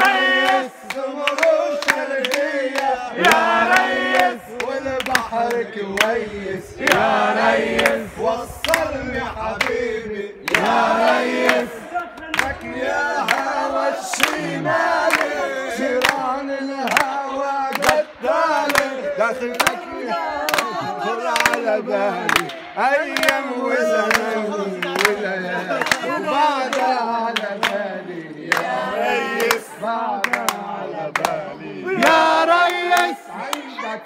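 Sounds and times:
hand claps: 0.0s - 6.2s, 7.7s - 8.0s, 8.6s - 8.9s, 10.4s - 13.5s, 14.1s - 14.4s, 15.0s - 23.4s, 24.0s - 31.4s
group singing folk song: 0.0s - 34.0s.

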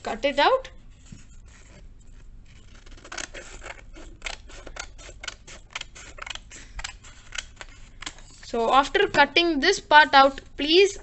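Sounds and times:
scissors snipping paper: 1.0s - 8.4s.

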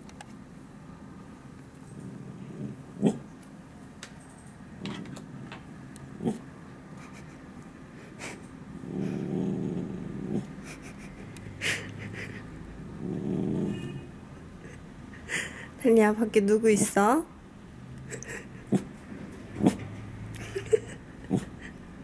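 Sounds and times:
dog growling: 1.9s - 3.3s, 4.8s - 6.5s, 8.8s - 10.9s, 11.6s - 14.2s, 18.2s - 19.9s, 20.6s - 21.7s.

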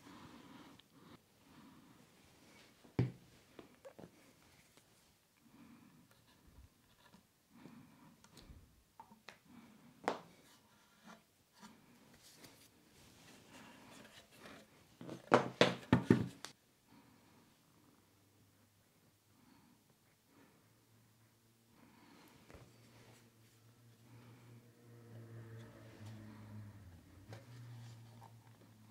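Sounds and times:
soft handling noises: 2.1s - 5.4s, 10.0s - 16.6s.

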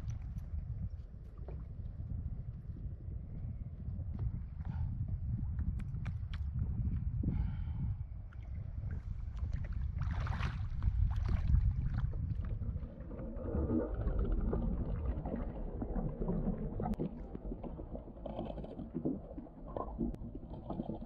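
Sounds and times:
underwater crackling and ticks: 0.0s - 2.0s, 5.5s - 7.1s, 10.8s - 21.0s
muffled underwater sound: 0.0s - 21.0s
wind rumble on microphone: 0.0s - 21.0s
water splashing: 9.0s - 21.0s.

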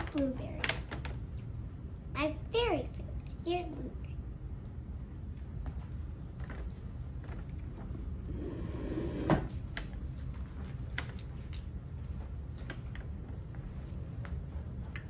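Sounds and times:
child chewing candy: 7.3s - 8.2s.

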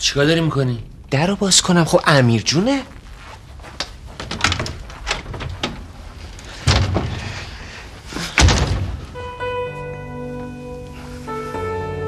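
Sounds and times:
door thud: 6.6s - 7.5s, 8.2s - 9.2s.

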